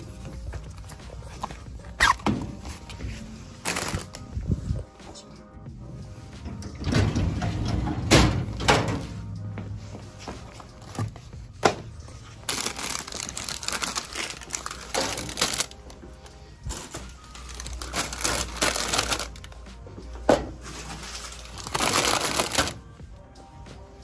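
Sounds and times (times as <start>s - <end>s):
plastic snack bags crinkling: 3.6s - 4.3s, 12.3s - 16.0s, 16.6s - 19.6s, 20.8s - 22.8s.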